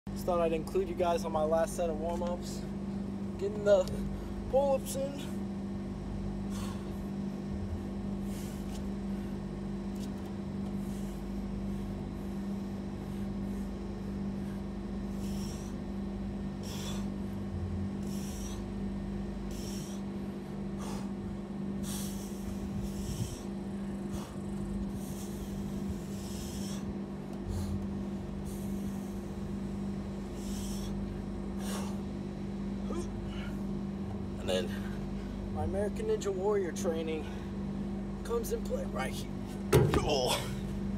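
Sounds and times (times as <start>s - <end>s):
steady low hum: 0.0s - 40.9s.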